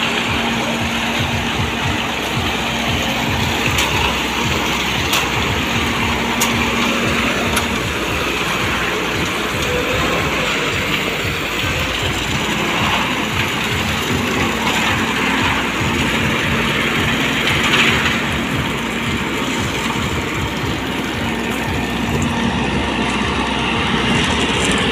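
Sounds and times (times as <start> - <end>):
concrete mixer engine running: 0.0 - 24.9
concrete pouring down chute: 0.0 - 24.9.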